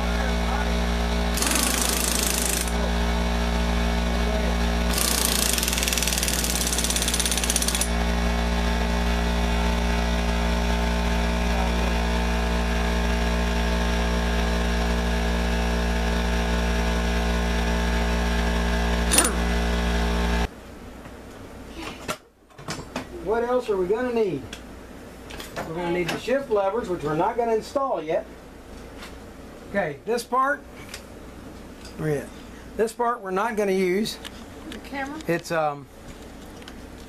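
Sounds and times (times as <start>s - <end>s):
impact wrench hammering: 1.3s - 2.8s, 4.9s - 8.0s, 19.1s - 19.5s.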